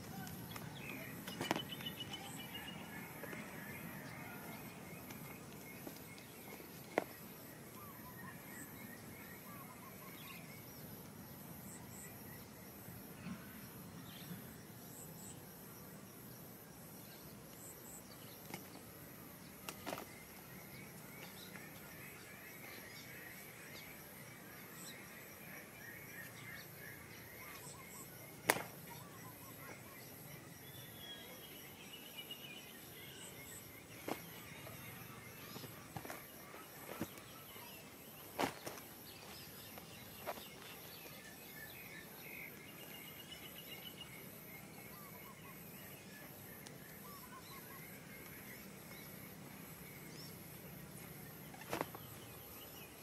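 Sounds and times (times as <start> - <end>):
high insect chirp: 0.0 - 53.0
bird calls: 51.3 - 53.0.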